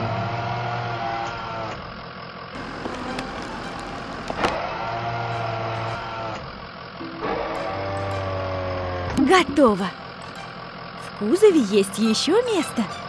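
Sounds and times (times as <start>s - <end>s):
hydraulic crane motor whirring: 0.0s - 13.0s.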